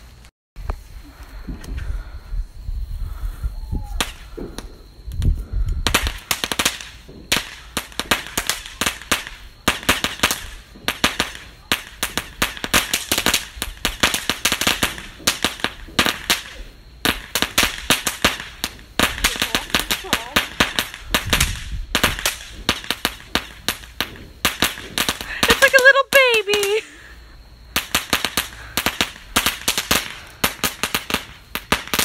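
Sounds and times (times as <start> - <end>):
firework crackling pops: 3.6 - 27.0, 27.6 - 32.0.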